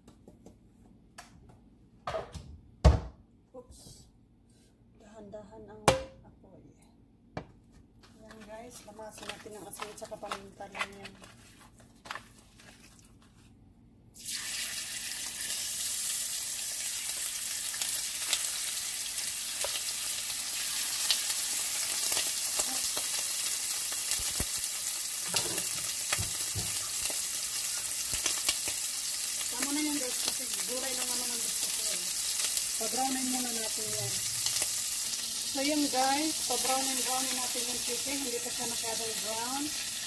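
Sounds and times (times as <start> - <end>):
chicken sizzling in oil: 14.2 - 40.0
oil popping and crackling: 15.1 - 39.7.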